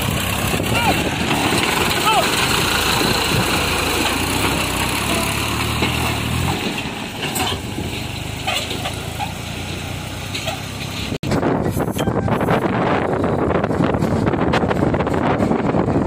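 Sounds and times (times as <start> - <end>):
wind buffeting microphone: 0.0 - 4.8, 11.2 - 16.0
tractor diesel engine running: 0.0 - 16.0.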